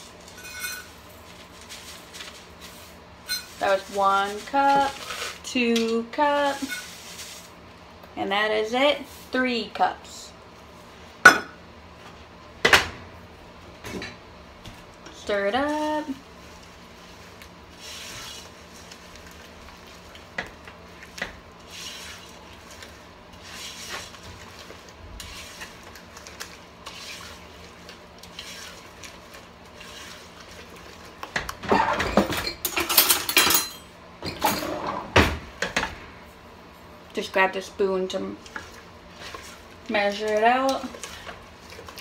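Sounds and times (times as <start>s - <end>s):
spatula scraping saucepan: 6.4s - 7.6s, 17.7s - 19.0s, 26.8s - 31.1s.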